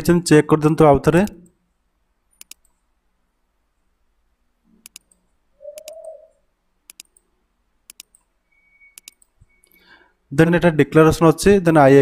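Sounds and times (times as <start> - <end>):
computer mouse clicking: 2.3 - 2.8, 4.8 - 6.2, 6.9 - 7.3, 7.9 - 8.3, 9.0 - 9.4
low coo: 5.6 - 6.4.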